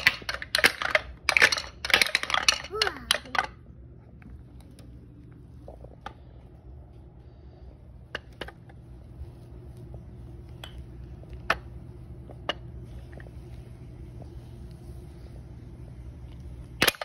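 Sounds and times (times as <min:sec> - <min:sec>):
wooden balls clacking on wood: 0:00.0 - 0:03.6.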